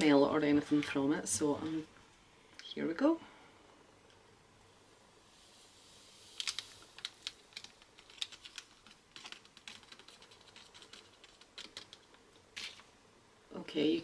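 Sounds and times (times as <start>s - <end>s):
powder pouring into plastic bottle: 5.4s - 12.9s
foil sachet crinkling: 6.3s - 12.9s.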